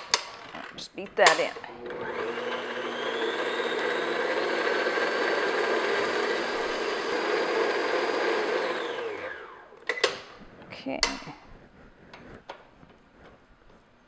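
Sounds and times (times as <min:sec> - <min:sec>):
stand mixer beating batter: 0:01.8 - 0:09.7.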